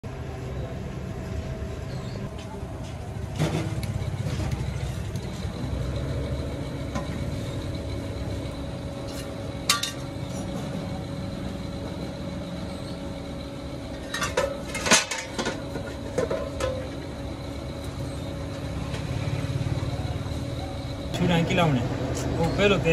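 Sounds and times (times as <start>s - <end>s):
low machine hum: 0.0s - 22.9s
metal pieces clinking and clanking: 14.0s - 15.6s.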